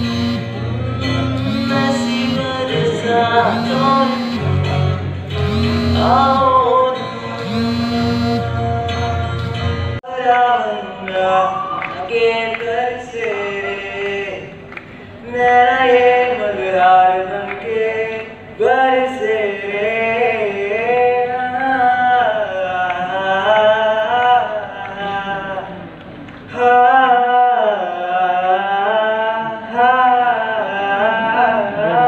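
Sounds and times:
held chord: 0.0s - 10.0s
steady low hum: 0.0s - 10.0s
man singing through loudspeakers: 0.0s - 32.0s.

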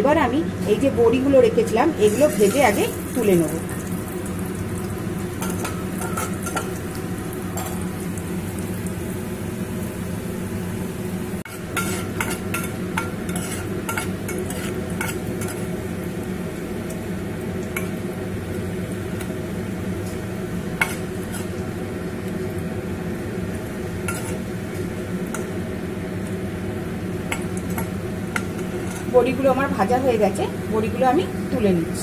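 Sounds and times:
food sizzling in oil: 0.6s - 32.0s
spoon scraping against pot: 11.5s - 15.7s, 20.8s - 21.6s, 24.1s - 24.4s.

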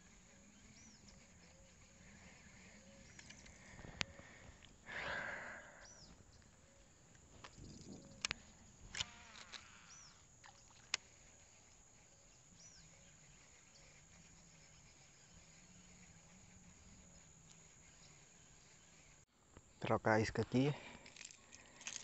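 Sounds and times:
faint chirps: 0.0s - 20.0s
small clicks: 3.1s - 4.7s, 7.4s - 9.8s
faint wavering low buzz: 5.6s - 19.2s.

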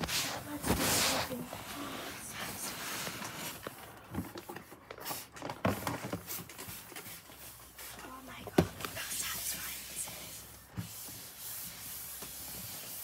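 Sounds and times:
paper towel rubbing on desk: 0.0s - 3.1s, 9.3s - 13.0s.

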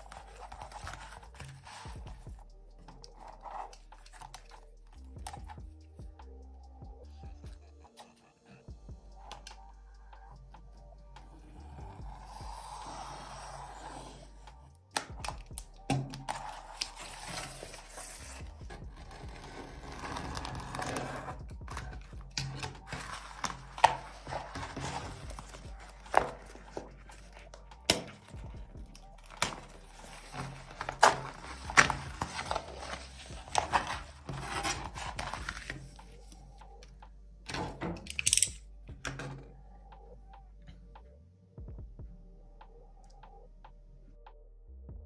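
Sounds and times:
vinyl sheet crinkling: 0.0s - 2.0s, 29.0s - 36.0s.

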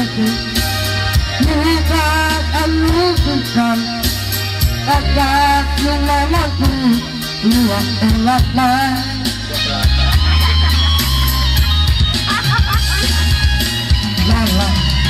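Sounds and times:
man singing into a microphone: 0.0s - 10.0s
backing music with bass notes: 0.0s - 15.0s.

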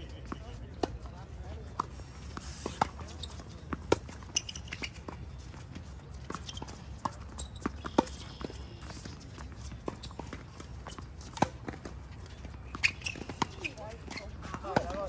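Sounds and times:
tennis ball bouncing on court: 0.2s - 15.0s
tennis ball hitting racquets: 0.2s - 15.0s.

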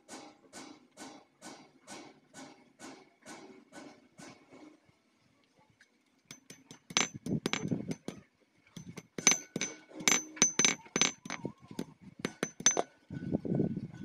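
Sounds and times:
hammer clinking on steel wire: 6.3s - 8.2s, 8.8s - 12.9s.

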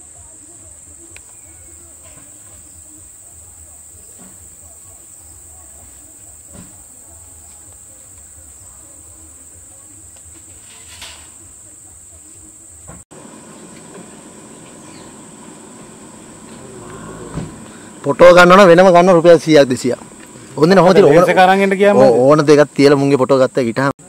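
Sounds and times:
high-pitched insect drone: 8.5s - 23.9s.

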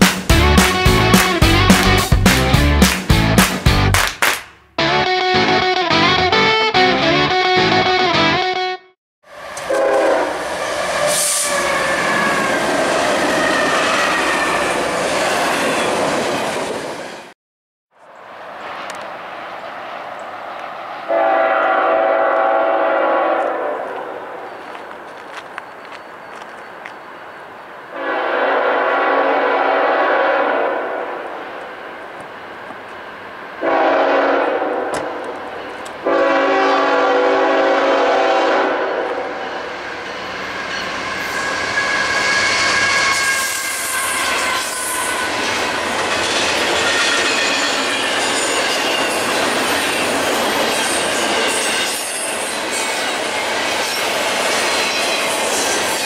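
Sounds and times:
locomotive air horn blasts: 9.3s - 12.6s, 21.1s - 24.0s, 28.0s - 31.0s, 33.6s - 35.2s, 36.0s - 39.4s, 41.3s - 45.4s
high wheel squeal: 10.5s - 16.0s, 39.5s - 56.0s.

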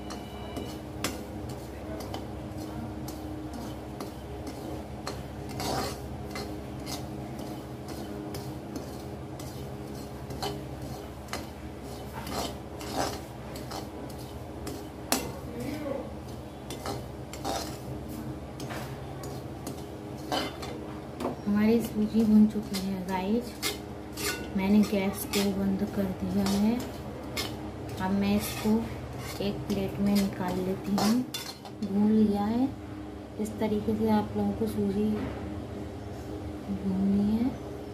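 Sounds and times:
metal spatula scraping pan: 0.0s - 15.4s, 16.2s - 17.9s, 18.6s - 20.8s, 21.7s - 31.8s.

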